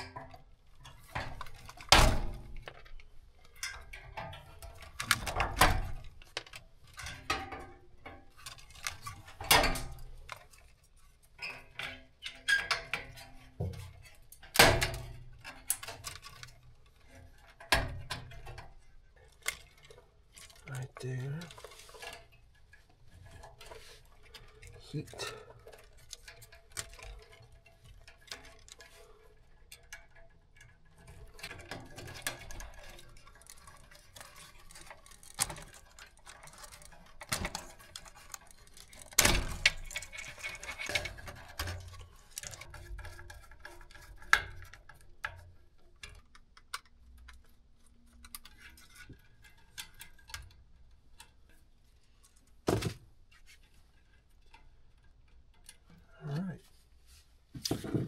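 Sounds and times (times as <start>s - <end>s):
tools and parts clattering: 0.0s - 56.7s, 57.6s - 58.0s.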